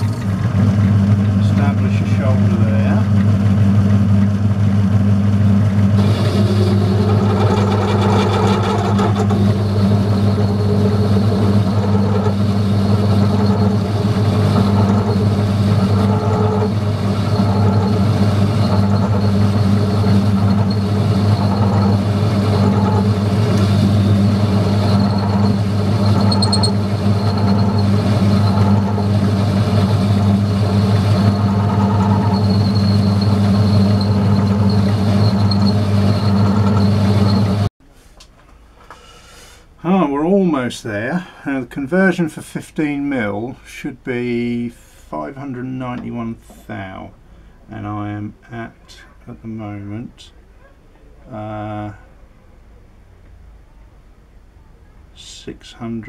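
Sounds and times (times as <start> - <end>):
metal lathe motor humming: 0.0 - 37.7.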